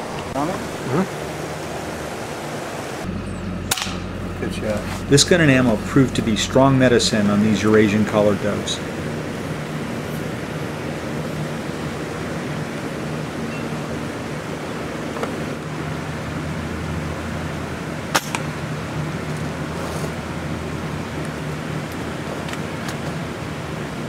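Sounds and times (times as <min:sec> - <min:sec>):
low hum: 0:00.0 - 0:24.0
steady outdoor rumble: 0:00.0 - 0:24.0
air rifle shot: 0:03.7 - 0:04.1, 0:18.1 - 0:18.5.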